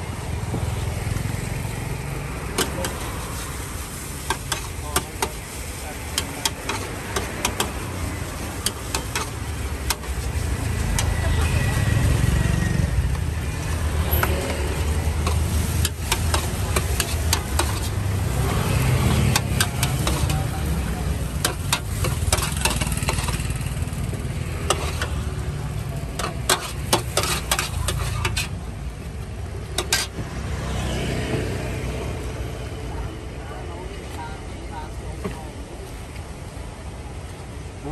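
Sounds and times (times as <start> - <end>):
frying sizzle: 0.0 - 32.7
metal spatula scraping wok: 2.4 - 28.8, 29.4 - 30.8.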